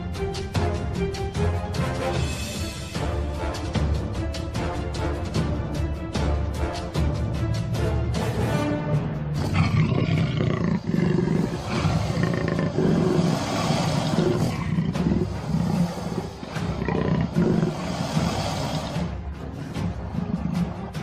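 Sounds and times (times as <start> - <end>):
background music: 0.0 - 21.0
animal roaring: 9.4 - 21.0.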